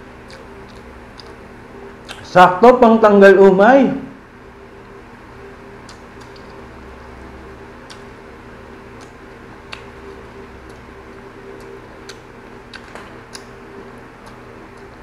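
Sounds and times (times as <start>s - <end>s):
steady low hum: 0.0s - 15.0s
person chewing food: 0.1s - 2.2s, 5.8s - 6.7s, 7.7s - 15.0s
mouth clicks and smacks: 0.2s - 1.4s, 2.0s - 2.3s, 5.8s - 6.6s, 7.8s - 8.2s, 8.9s - 10.9s, 11.5s - 13.6s, 14.2s - 15.0s.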